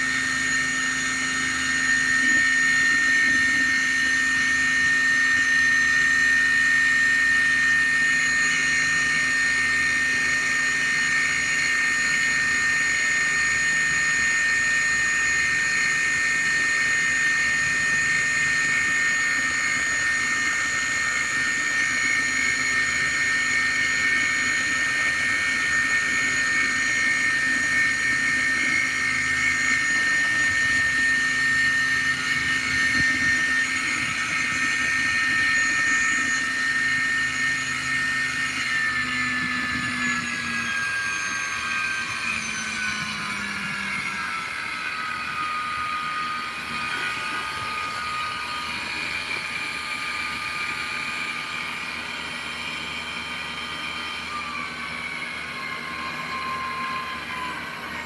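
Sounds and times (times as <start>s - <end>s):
electric motor whining: 0.0s - 58.0s.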